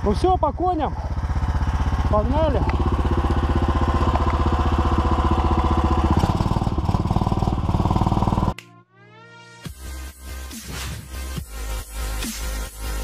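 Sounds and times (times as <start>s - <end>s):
snowmobile engine running: 0.0s - 8.6s
electronic music: 8.5s - 13.0s.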